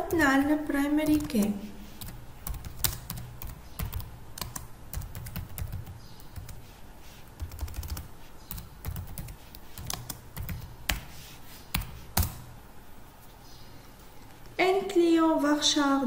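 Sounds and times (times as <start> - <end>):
typing on computer keyboard: 0.0 - 1.4, 2.0 - 6.6, 7.4 - 11.1.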